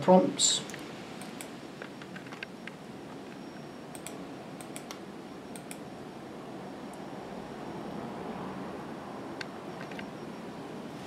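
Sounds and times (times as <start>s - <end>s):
steady background hiss: 0.0s - 11.0s
computer mouse clicks: 0.7s - 2.5s, 3.3s - 5.8s.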